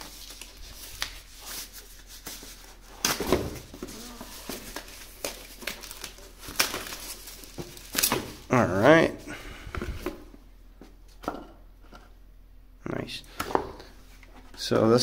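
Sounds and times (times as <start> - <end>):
paper wrapping crinkling: 0.0 - 8.5.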